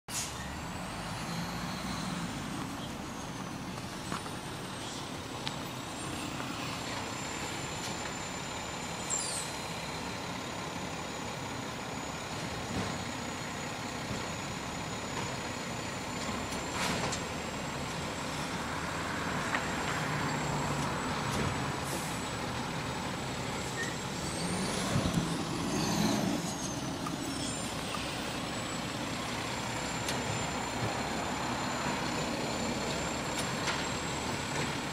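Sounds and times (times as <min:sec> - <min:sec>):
truck hisses and knocks: 0:00.1 - 0:00.4, 0:21.3 - 0:22.3
diesel engine running: 0:00.1 - 0:34.9.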